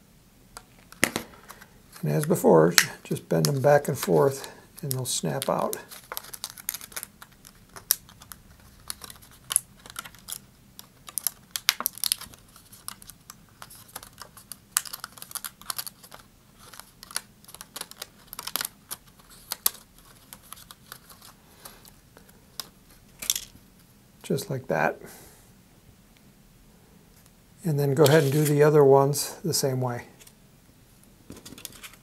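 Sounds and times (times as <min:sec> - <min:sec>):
plastic sheet clicking and crackling: 0:00.9 - 0:21.3.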